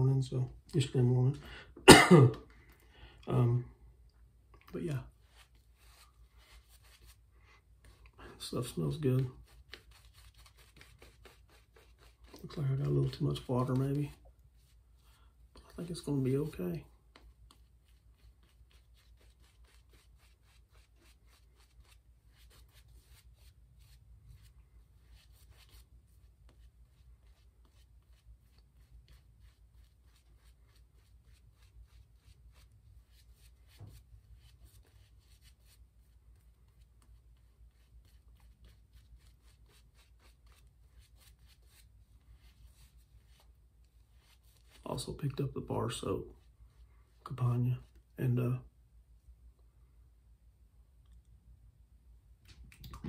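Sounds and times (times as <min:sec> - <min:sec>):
shaving brush rubbing on face: 0:05.1 - 0:15.1, 0:15.9 - 0:48.0.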